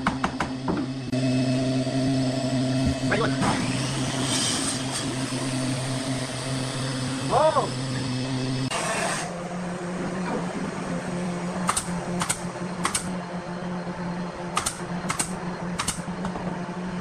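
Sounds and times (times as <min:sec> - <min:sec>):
nail gun firing into wood: 0:11.6 - 0:13.1, 0:14.6 - 0:16.1.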